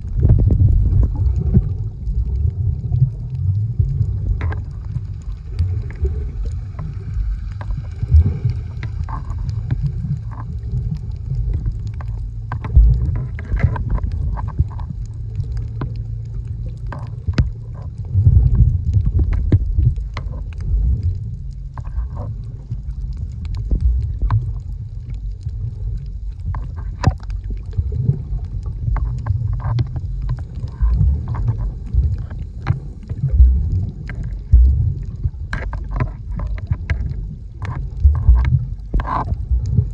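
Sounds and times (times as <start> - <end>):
muffled underwater rumble: 0.0 - 39.9
underwater clicks and crackles: 0.0 - 39.9.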